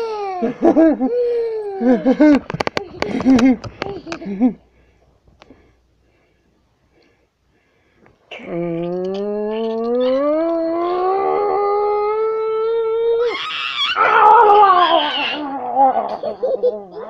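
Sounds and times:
person growling: 8.3 - 16.2
person howling playfully: 8.5 - 17.0.

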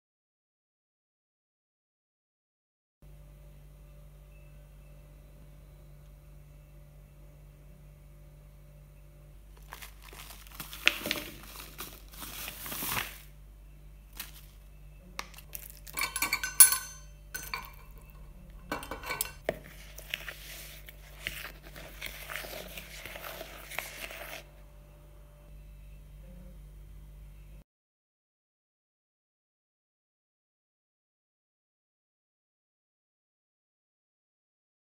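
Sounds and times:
metal utensils scraping bowl: 15.5 - 24.5.

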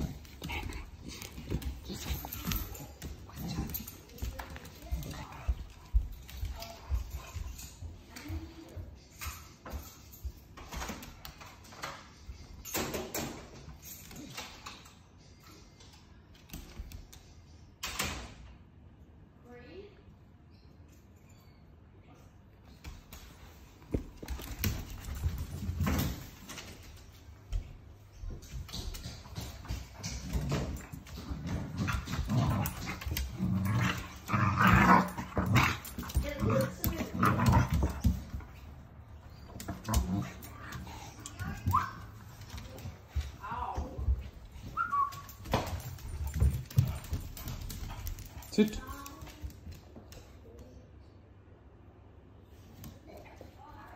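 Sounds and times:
dog play-growling: 0.0 - 7.6, 29.7 - 43.4
paws tapping on hardwood floor: 0.0 - 12.6, 22.8 - 50.8.

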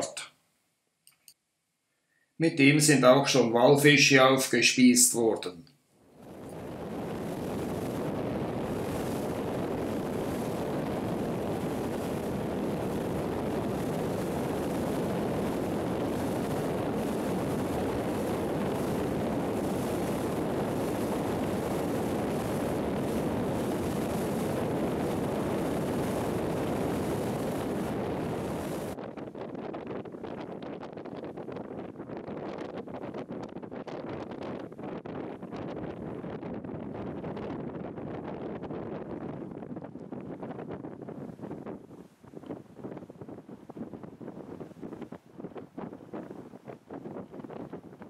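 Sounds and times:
wind: 5.7 - 48.0
sea water rushing: 6.2 - 29.0.

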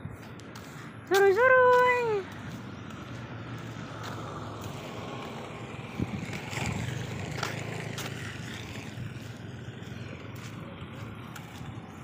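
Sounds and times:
wind on microphone: 5.2 - 7.6.

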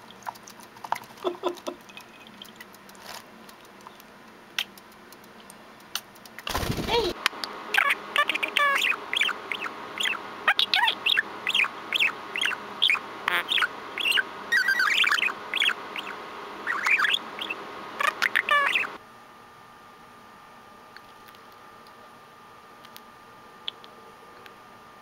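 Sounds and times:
budgerigar chattering: 7.8 - 18.9.

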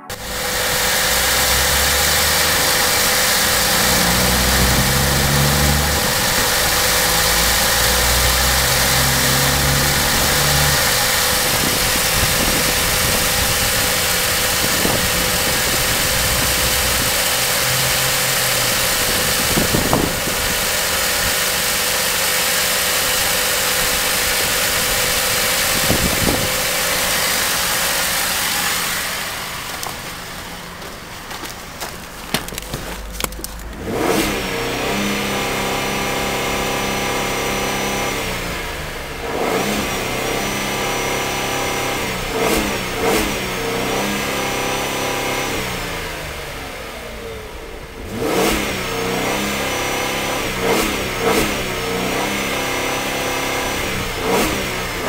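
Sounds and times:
car engine idling: 0.0 - 37.5.

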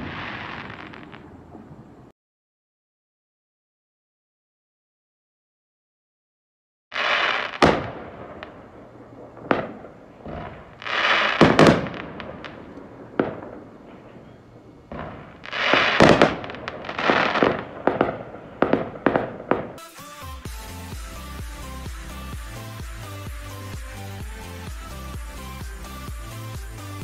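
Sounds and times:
firework pops: 0.0 - 1.7, 7.0 - 8.6, 9.2 - 14.2, 14.9 - 19.8
firework crackling: 0.0 - 2.1, 6.9 - 27.0
firework shells bursting: 7.0 - 20.0.

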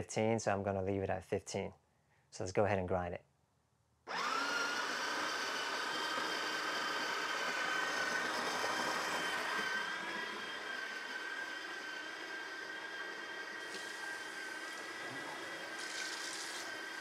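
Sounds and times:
coffee grinder motor whine: 4.1 - 17.0.

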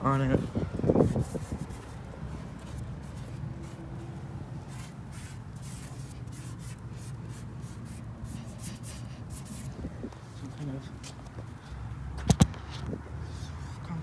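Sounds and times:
fingertip rubbing on a surface: 4.6 - 9.8.

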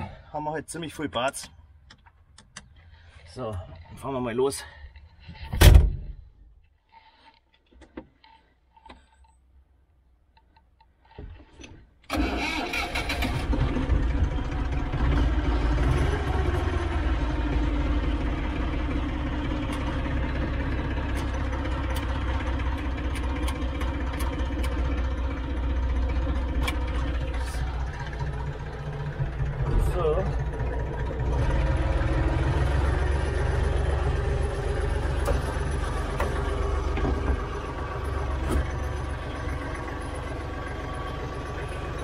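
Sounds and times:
tractor diesel engine: 11.0 - 42.0.

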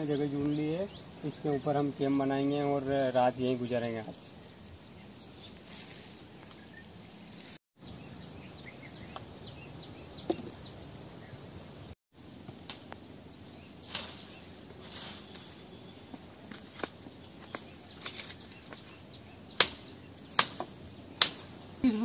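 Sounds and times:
bird chirps: 0.0 - 5.6, 6.4 - 11.4
brush rustling: 0.0 - 7.6, 12.2 - 22.0
insects hissing: 0.0 - 22.0.

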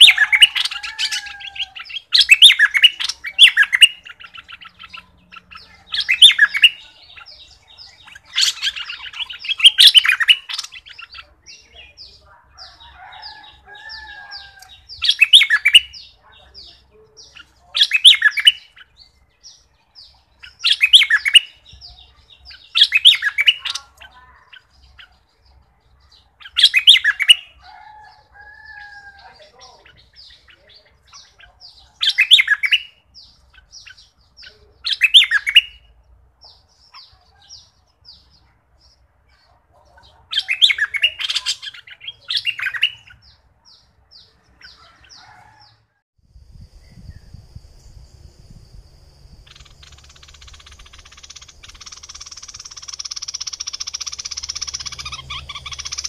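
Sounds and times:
bulbuls singing: 0.0 - 56.0.

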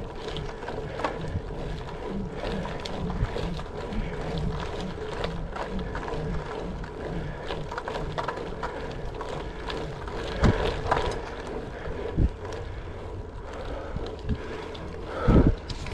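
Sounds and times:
bike rolling on gravel: 0.0 - 15.9
wind buffeting microphone: 0.0 - 15.9.

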